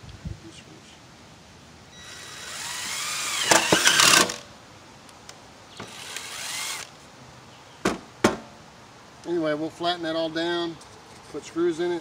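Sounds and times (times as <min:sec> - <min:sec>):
cordless drill motor whine: 0:02.0 - 0:04.4, 0:05.8 - 0:06.9.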